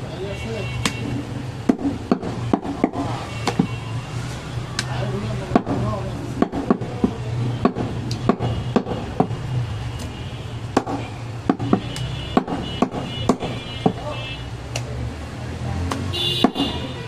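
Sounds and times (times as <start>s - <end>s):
cleaver chopping meat on wood: 1.6s - 3.7s, 5.5s - 9.4s, 10.7s - 14.0s.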